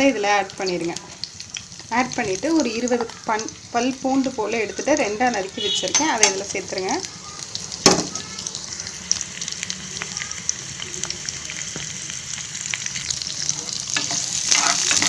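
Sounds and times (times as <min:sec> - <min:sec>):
onions sizzling in oil: 0:00.0 - 0:15.0
ladle stirring in a pan: 0:13.9 - 0:15.0.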